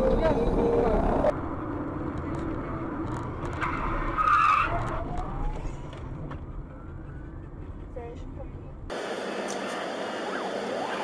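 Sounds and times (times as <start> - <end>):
car road noise: 0.0 - 11.0
tyres skidding screech: 3.4 - 6.1.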